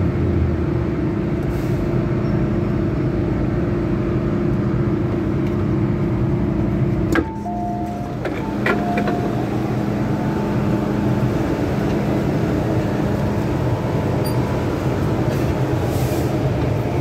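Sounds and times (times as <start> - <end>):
standing train humming: 0.0 - 17.0.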